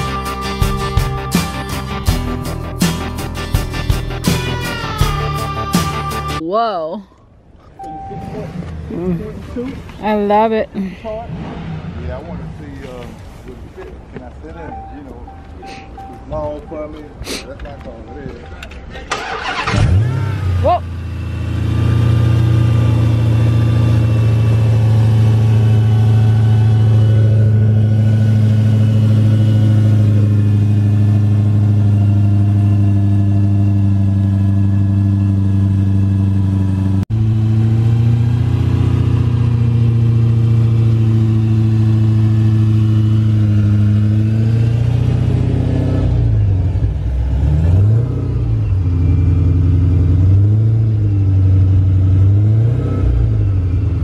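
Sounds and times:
car engine idling: 7.8 - 45.4
engine revving in short blips: 18.2 - 30.4.

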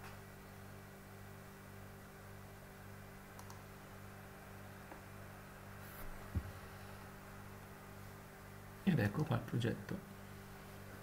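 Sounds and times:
steady low hum: 0.0 - 11.0
computer mouse clicks: 3.3 - 3.6.

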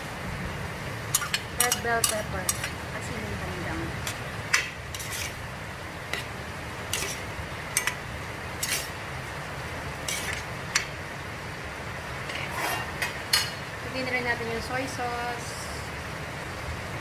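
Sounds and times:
metal ladle scraping a pot: 1.1 - 2.8, 4.0 - 5.4, 6.1 - 8.0, 8.6 - 9.0, 10.0 - 10.9, 12.3 - 13.5.

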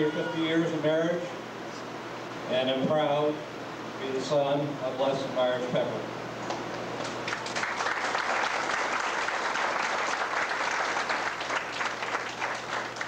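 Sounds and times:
crowd applauding: 7.0 - 13.0.

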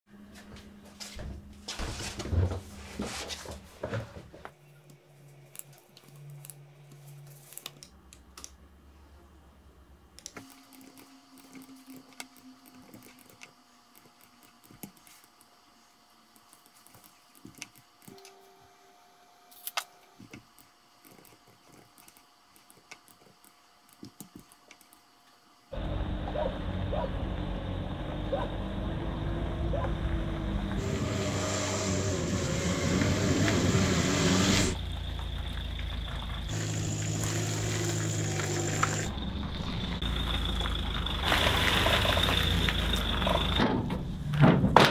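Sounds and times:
faint room hum: 0.1 - 29.1.

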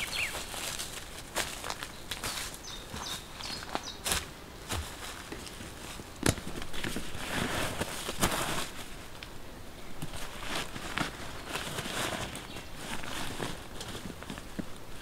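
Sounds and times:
footsteps on forest floor: 0.0 - 9.0
fabric sack rustling: 4.6 - 9.1, 10.0 - 15.0.

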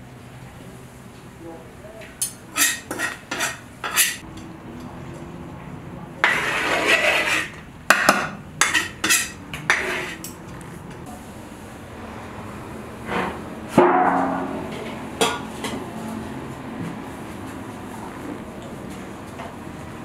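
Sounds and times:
metal skimmer scraping a metal pot: 2.5 - 4.2, 6.2 - 7.6, 8.6 - 10.3.

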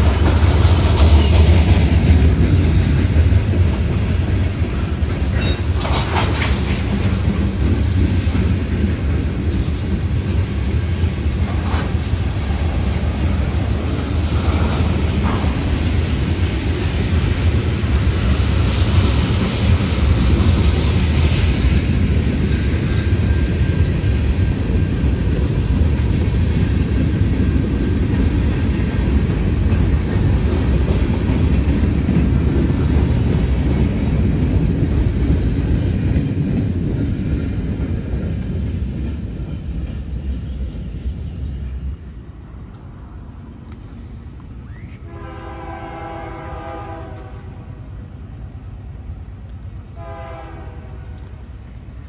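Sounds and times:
freight cars rumbling on rails: 0.0 - 52.0
diesel locomotive horn: 45.0 - 47.7, 49.9 - 51.4.

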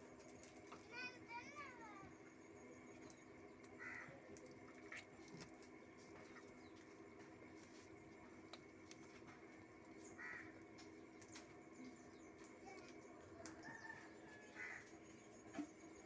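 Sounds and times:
faint steady hum: 0.0 - 16.0
faint bird calls: 2.9 - 6.9, 10.0 - 16.0.

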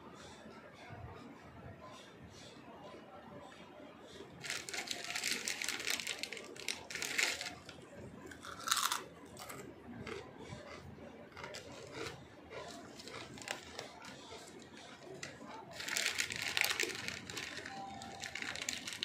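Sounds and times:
chips crunching and chewing: 4.4 - 19.0.

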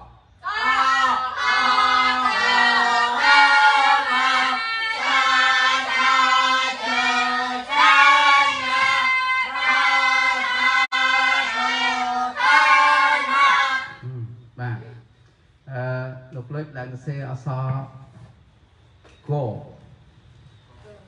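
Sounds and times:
children chanting in unison: 0.0 - 14.1.

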